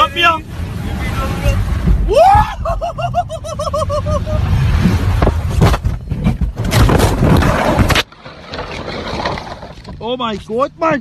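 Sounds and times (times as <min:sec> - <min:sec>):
car crash rushing noise: 0:04.4 - 0:09.8
heavy knocks and crunches: 0:05.1 - 0:10.3.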